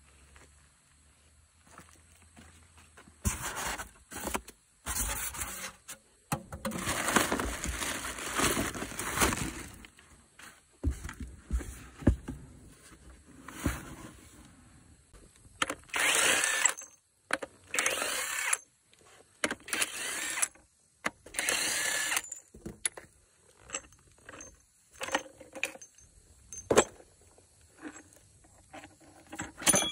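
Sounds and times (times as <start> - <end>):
metal clinks and knocks: 22.2 - 29.9.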